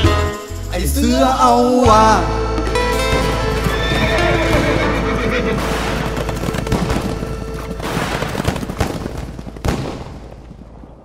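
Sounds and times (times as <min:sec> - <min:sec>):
fireworks crackling and banging: 0:03.0 - 0:11.0.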